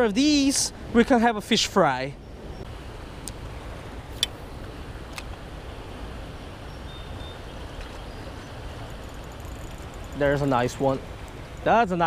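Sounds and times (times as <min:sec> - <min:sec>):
light clicks: 0:05.1 - 0:05.4.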